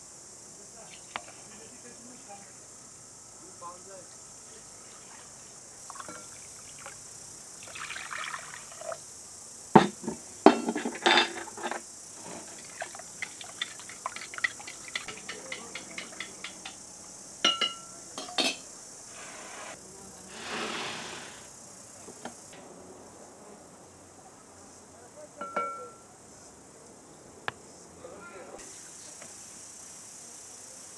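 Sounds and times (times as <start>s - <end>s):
liquid pouring from jug: 7.6s - 9.0s
kitchenware knocking and clinking: 9.8s - 11.8s, 13.6s - 16.8s, 17.5s - 18.6s.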